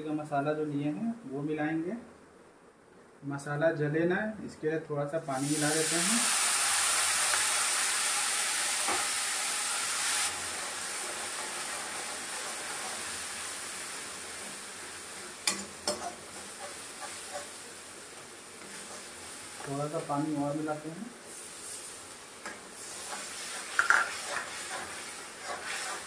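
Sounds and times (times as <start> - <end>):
water sizzling in hot pan: 5.3 - 26.0.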